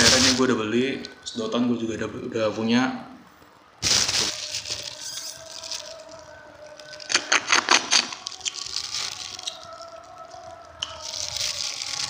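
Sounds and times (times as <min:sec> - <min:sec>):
plastic bag crinkling: 0:00.0 - 0:00.6, 0:03.8 - 0:12.0.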